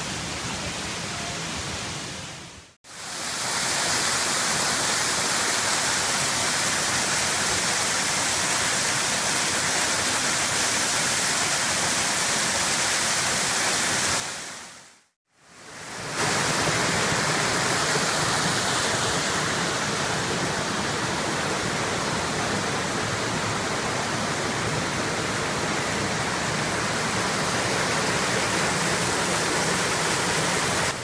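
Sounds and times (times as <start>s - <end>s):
waterfall roaring over rock: 2.9s - 14.6s, 15.6s - 31.0s.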